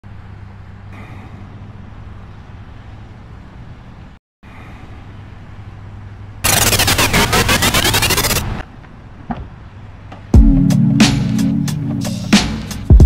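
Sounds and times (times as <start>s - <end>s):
steady low hum with hiss: 0.1s - 6.6s
loud music with fast beat: 6.5s - 8.4s, 10.4s - 13.0s.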